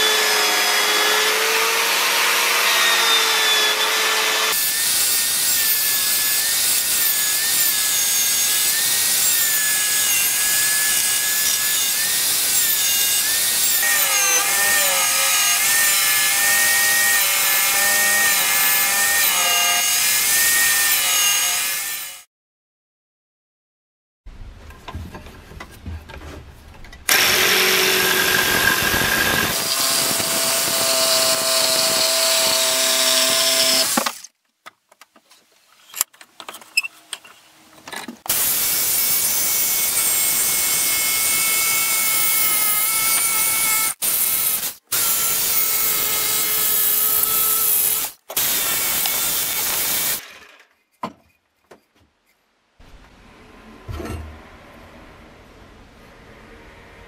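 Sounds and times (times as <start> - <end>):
jigsaw cutting wood: 0.0 - 12.6, 27.1 - 34.3, 38.3 - 50.6.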